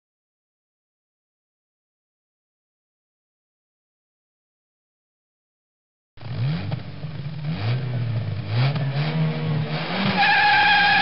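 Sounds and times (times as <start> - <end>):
car engine revving: 6.2 - 11.0.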